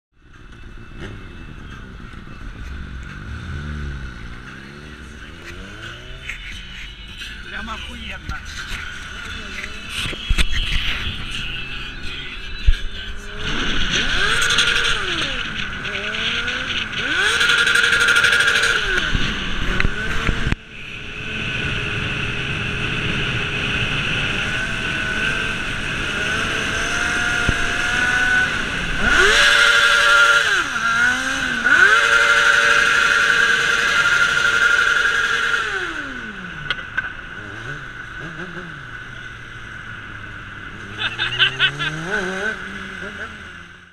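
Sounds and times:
motorcycle engine revving high: 13.1 - 43.9.

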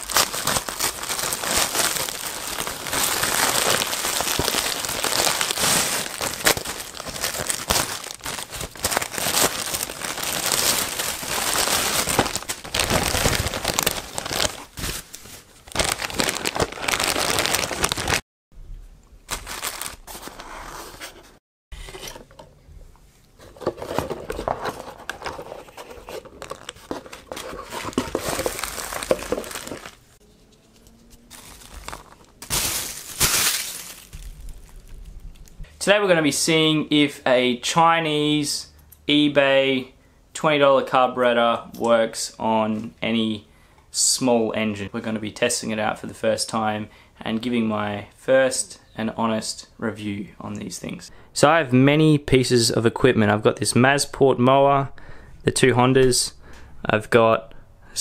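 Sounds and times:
plastic crinkling and tearing: 0.0 - 18.2, 19.3 - 20.4, 24.0 - 30.1, 30.8 - 35.6.

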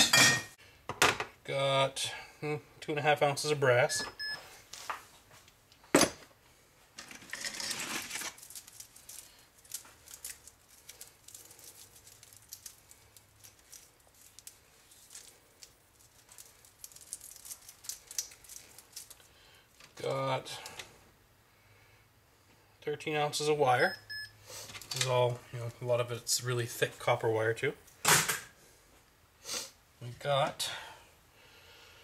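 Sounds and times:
metal and wire clicks and rattles: 7.0 - 19.2.

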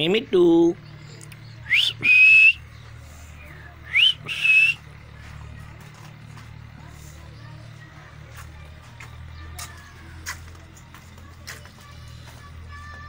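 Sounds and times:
parakeet whistling: 1.6 - 2.6, 3.9 - 4.8.

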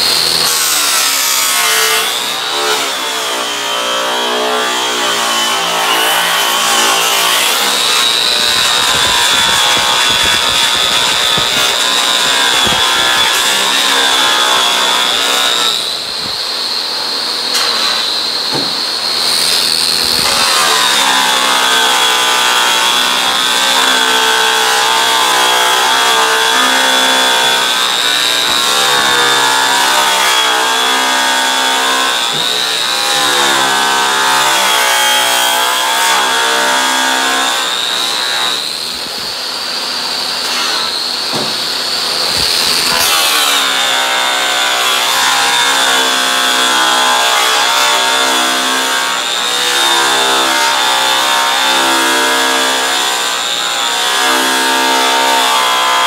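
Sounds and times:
electric polisher motor whine: 2.1 - 23.7, 37.1 - 44.3.

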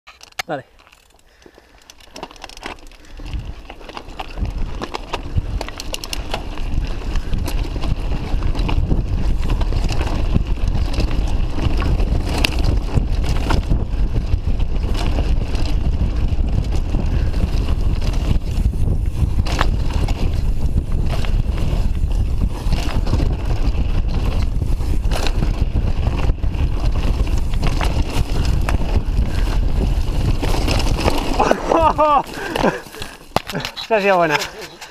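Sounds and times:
bike knocking and rattling: 0.1 - 34.9
tyres crunching over gravel: 0.6 - 13.7, 16.5 - 34.9
wind rumble on microphone: 3.0 - 33.2.

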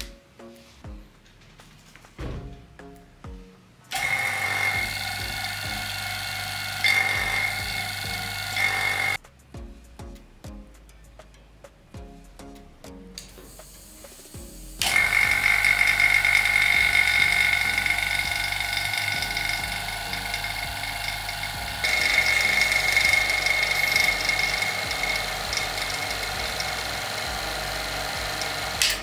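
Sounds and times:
high-pitched electrical whine and buzz: 3.9 - 9.2, 13.5 - 29.0.

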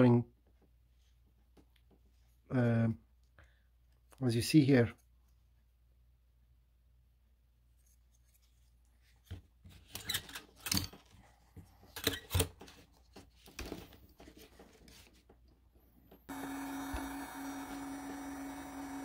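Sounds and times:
hot air gun fan blowing: 16.3 - 19.0.

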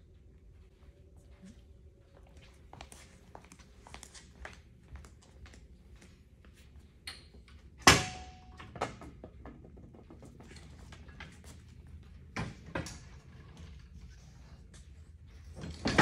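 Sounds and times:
footsteps on concrete: 2.2 - 6.7.

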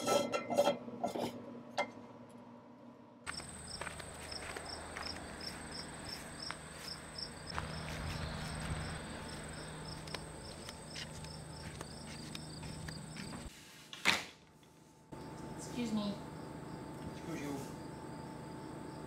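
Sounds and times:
cricket chirping: 3.3 - 13.5, 15.2 - 19.0
insects buzzing: 3.3 - 13.5, 15.2 - 19.0.

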